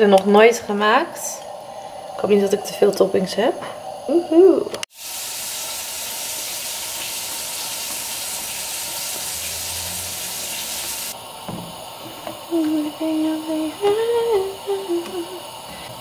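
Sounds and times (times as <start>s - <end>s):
egg sizzling in frying pan: 4.8s - 16.0s
person humming a tune: 12.5s - 15.8s.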